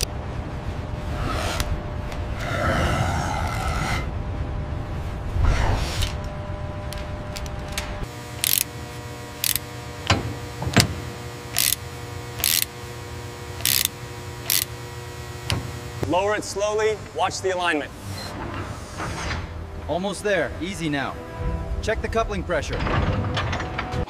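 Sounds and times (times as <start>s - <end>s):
steady machine hum: 0.0s - 22.8s
low rumble: 0.1s - 8.1s
ratchet wrench clicking: 8.4s - 8.7s, 9.4s - 10.2s, 11.5s - 11.8s, 12.4s - 12.7s, 13.6s - 14.7s
sharp metal ticks: 8.4s - 8.7s, 9.4s - 9.6s, 11.5s - 11.8s, 12.4s - 12.7s, 13.6s - 14.7s.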